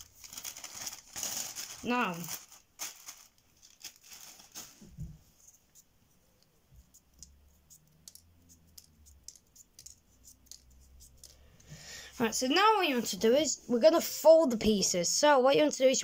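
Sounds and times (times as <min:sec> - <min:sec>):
paper pieces clicking when handled: 0:05.7 - 0:11.4.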